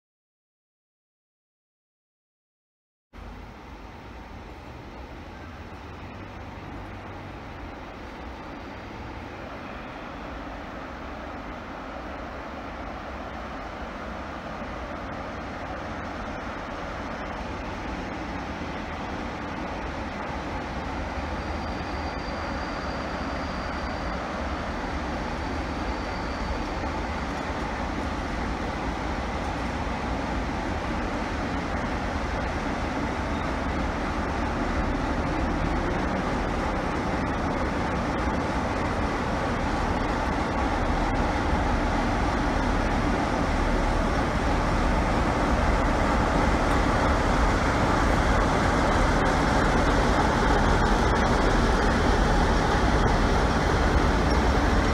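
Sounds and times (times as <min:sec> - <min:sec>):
diesel locomotive engine rumble: 0:03.2 - 0:54.9
wheels on rails: 0:16.3 - 0:54.9.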